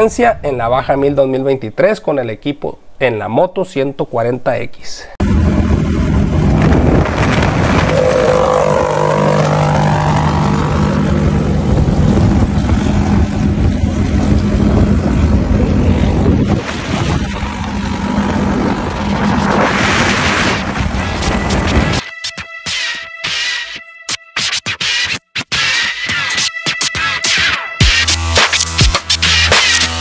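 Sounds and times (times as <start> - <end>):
wind rushing over microphone: 0.0 - 1.4, 5.2 - 22.0
motorcycle engine running: 5.2 - 22.0.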